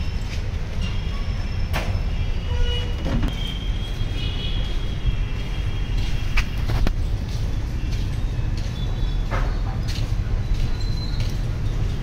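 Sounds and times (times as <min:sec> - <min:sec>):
low rumble of motor vehicles: 0:00.0 - 0:12.0.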